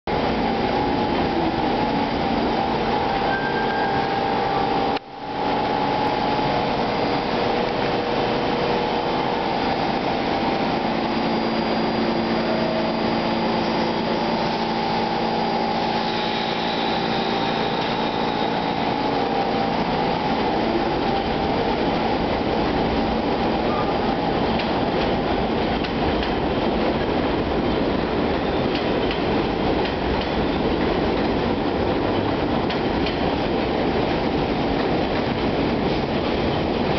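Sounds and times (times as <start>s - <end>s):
train humming tones: 0.1s - 36.9s
train wheels rumbling on rails: 0.1s - 36.9s.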